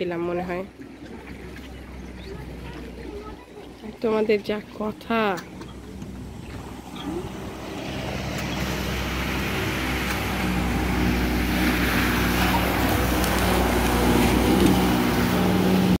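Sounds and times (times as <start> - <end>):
speedboat outboard motor: 0.0 - 16.0
water hissing from hull: 5.5 - 16.0.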